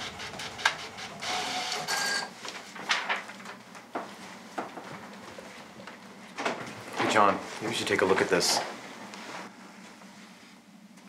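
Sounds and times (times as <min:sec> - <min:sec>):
printer paper feed whirring: 0:00.0 - 0:03.2.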